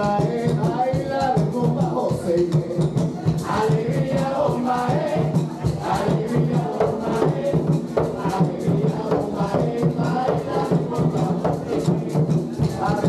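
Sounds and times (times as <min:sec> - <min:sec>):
hand drums fast rhythm: 0:00.0 - 0:13.0
voices chanting: 0:03.2 - 0:13.0.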